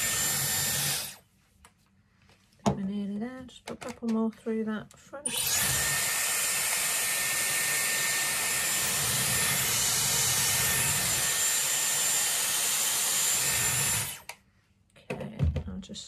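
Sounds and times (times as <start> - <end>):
hair styler blowing air: 0.0 - 1.2, 5.3 - 14.3.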